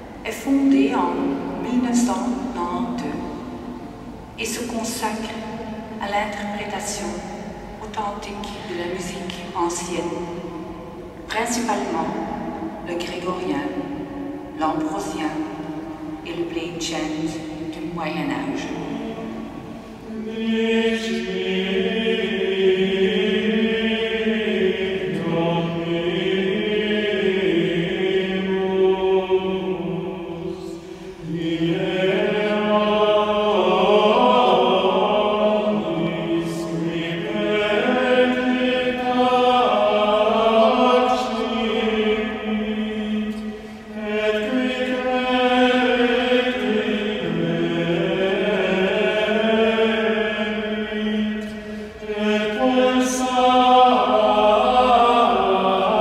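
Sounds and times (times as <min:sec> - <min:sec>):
male choir singing plainchant: 0:18.6 - 0:56.0.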